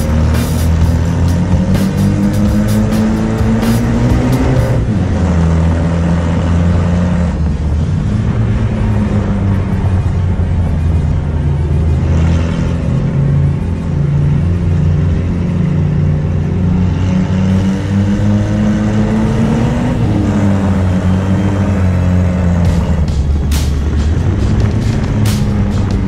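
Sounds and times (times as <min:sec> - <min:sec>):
pickup engine racing: 0:00.0 - 0:26.0.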